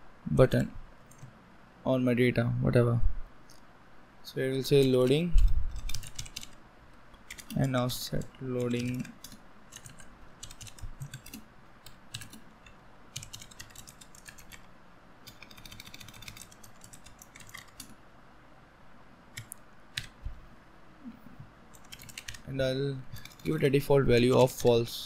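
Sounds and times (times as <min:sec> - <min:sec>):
typing on computer keyboard: 0:01.1 - 0:01.3, 0:04.8 - 0:06.6, 0:07.3 - 0:07.6, 0:08.6 - 0:18.0, 0:19.4 - 0:20.2, 0:21.7 - 0:22.5, 0:23.1 - 0:23.6.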